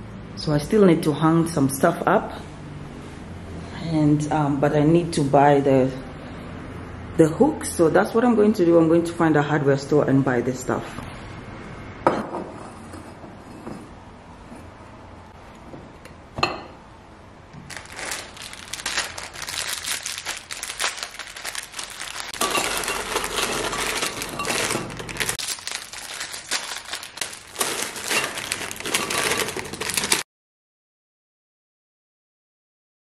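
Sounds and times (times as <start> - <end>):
plastic packet crinkling: 17.6 - 30.2
biscuits clinking against glass: 22.4 - 25.2.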